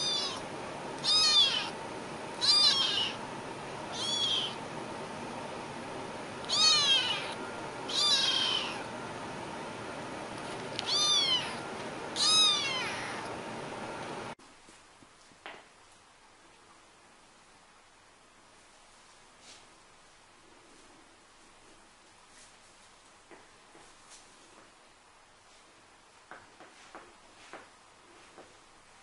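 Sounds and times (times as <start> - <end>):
kitten meowing: 0.0 - 0.4, 1.0 - 1.8, 2.4 - 3.2, 3.9 - 4.6, 6.4 - 8.9, 10.8 - 11.6, 12.2 - 13.3.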